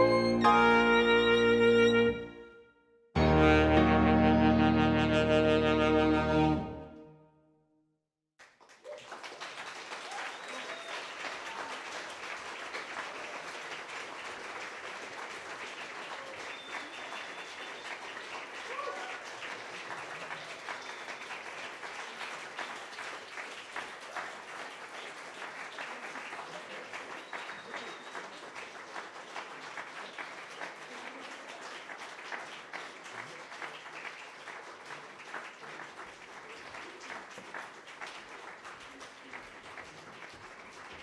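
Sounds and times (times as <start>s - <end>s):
audience applauding: 8.4s - 41.0s.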